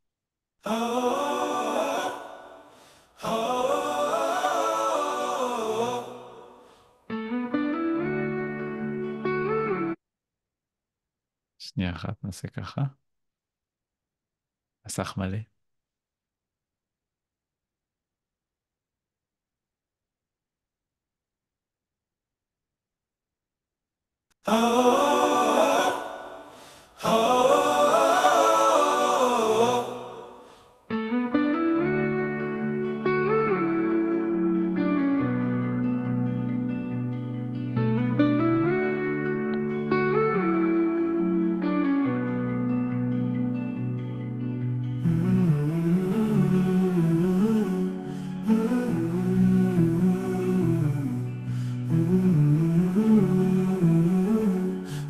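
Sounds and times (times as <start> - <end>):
choir humming: 0.6 - 6.6, 24.5 - 30.6
plucked guitar notes: 7.1 - 10.0, 30.9 - 54.2.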